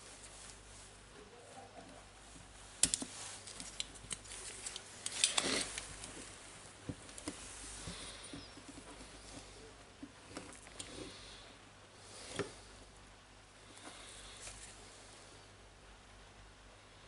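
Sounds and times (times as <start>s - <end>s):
small clicks and scrapes: 2.8s - 6.4s.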